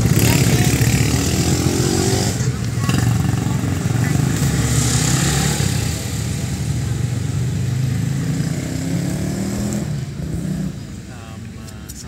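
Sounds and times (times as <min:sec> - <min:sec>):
motorbike engine running: 0:00.0 - 0:04.9
street traffic: 0:00.0 - 0:12.0.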